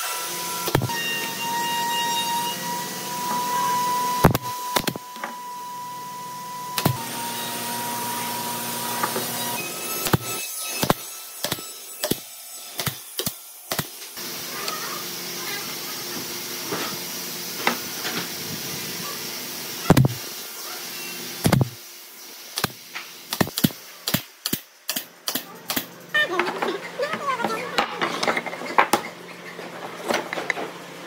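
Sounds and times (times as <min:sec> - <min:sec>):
nail gun shots: 0:04.2 - 0:05.0, 0:21.4 - 0:21.8, 0:22.6 - 0:25.9.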